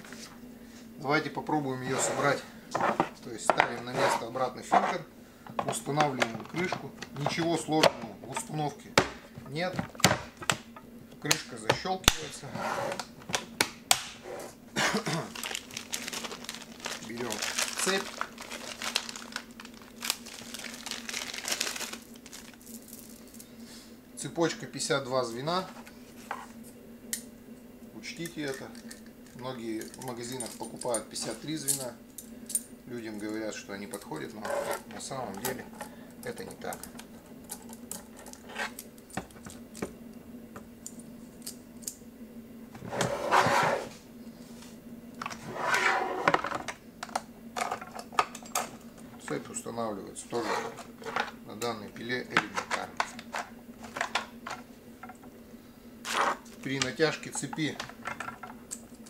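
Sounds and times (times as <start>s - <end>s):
plastic packaging crinkling: 14.9s - 23.4s.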